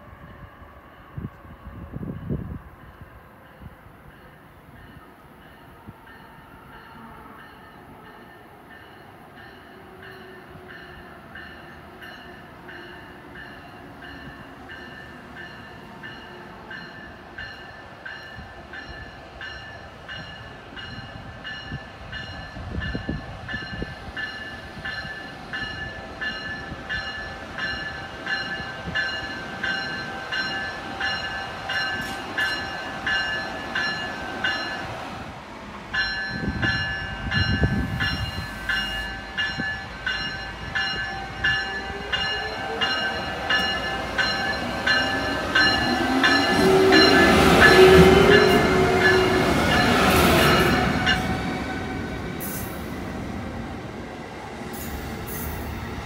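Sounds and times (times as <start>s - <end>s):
train rumble: 0.0s - 56.0s
locomotive bell ringing: 2.1s - 35.0s, 35.9s - 53.0s.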